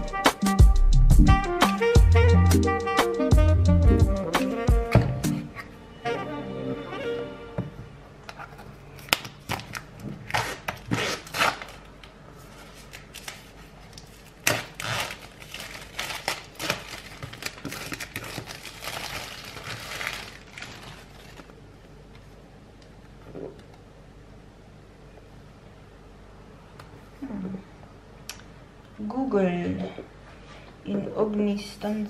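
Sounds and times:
rustling: 12.4 - 21.5.

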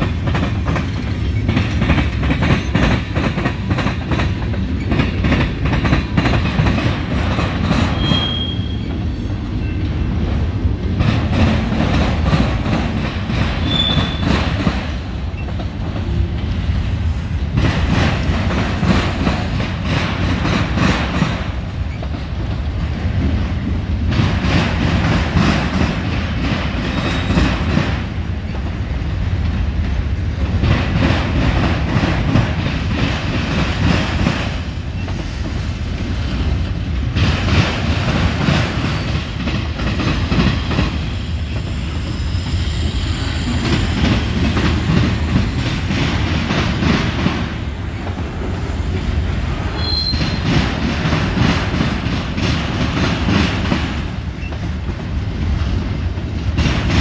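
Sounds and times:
train wheels clattering over crossing: 0.0 - 57.0
high wheel squeal: 7.9 - 9.9, 13.6 - 14.4, 41.4 - 45.3, 49.7 - 50.5.

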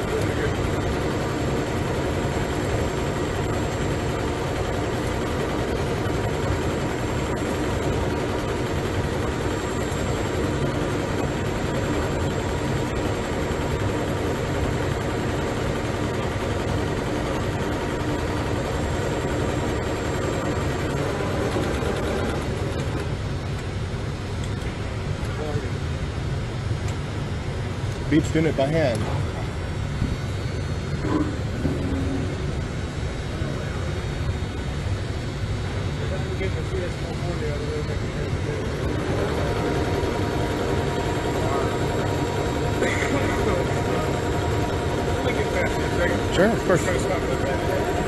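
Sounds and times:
sewing machine running: 0.0 - 23.2, 38.6 - 48.0.

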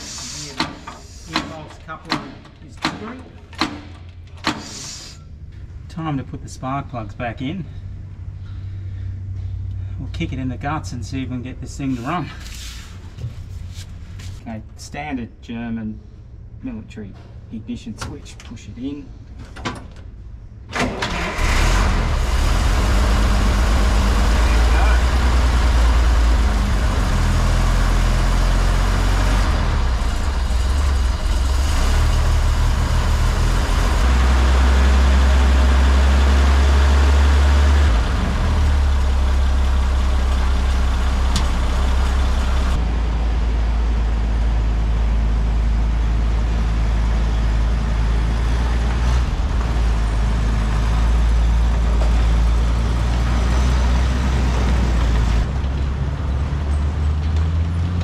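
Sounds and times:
petrol engine running: 22.2 - 58.0.

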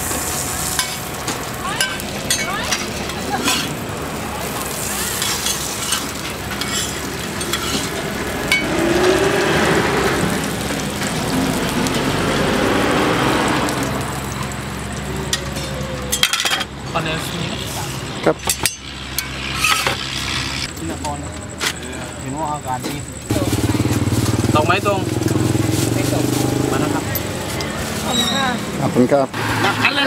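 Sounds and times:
dough sizzling in oil: 0.0 - 16.2
metal spatula scraping: 1.8 - 3.8, 5.1 - 8.6, 18.6 - 20.7.

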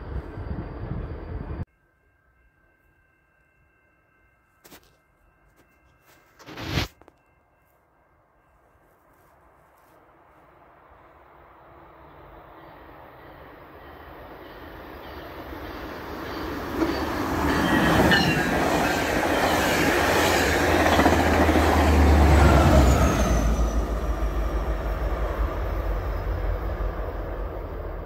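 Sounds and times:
train rail and wheel noise: 0.0 - 28.0.

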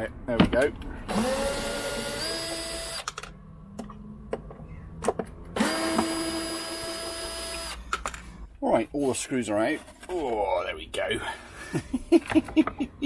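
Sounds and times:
cordless drill motor whine: 1.1 - 3.1, 5.6 - 7.8.

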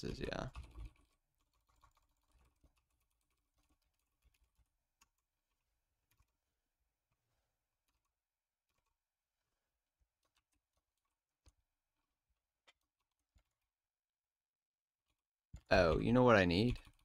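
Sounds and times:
computer keyboard keystrokes: 0.0 - 6.4.

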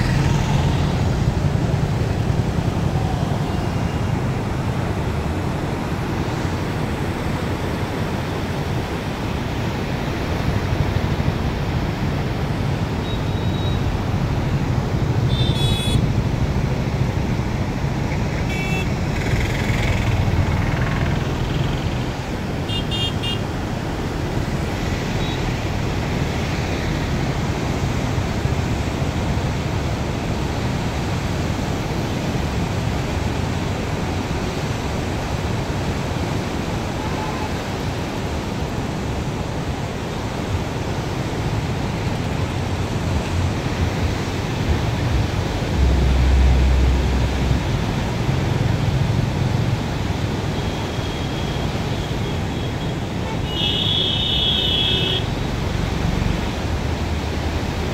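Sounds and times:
road traffic hum: 0.0 - 57.9
vehicle horn toots: 15.3 - 16.0, 18.5 - 18.9, 22.7 - 23.4, 53.3 - 55.3.

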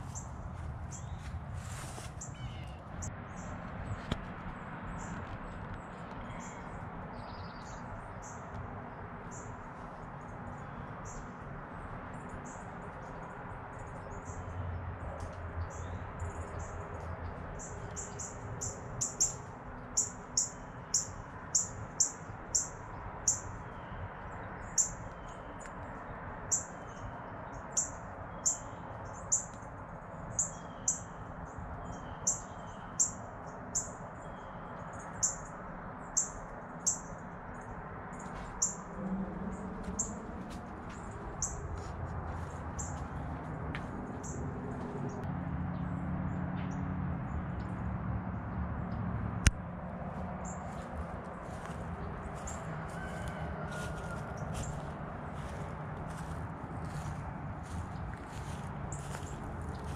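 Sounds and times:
outdoor background hum: 0.0 - 59.9
small bird chirping: 2.2 - 3.1.

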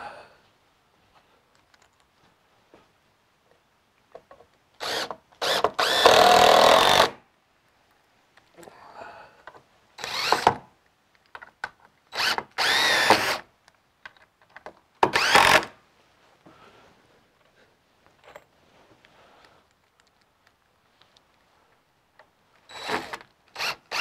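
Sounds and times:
cordless drill driving screws: 4.8 - 7.2, 10.0 - 10.6, 12.1 - 13.5, 15.0 - 15.8, 22.7 - 24.0.

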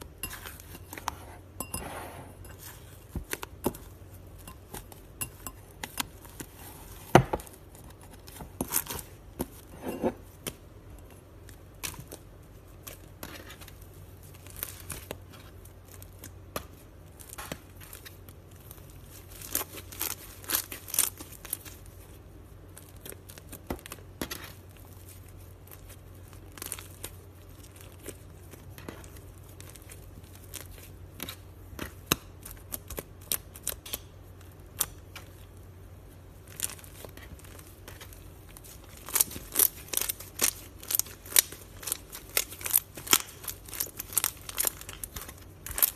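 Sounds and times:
slime crackling and popping: 10.4 - 45.9.

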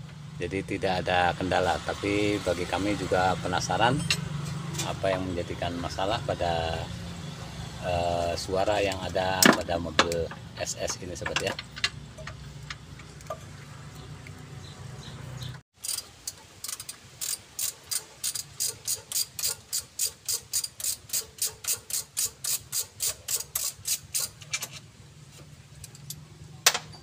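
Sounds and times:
ratchet wrench clicking: 15.8 - 24.8.

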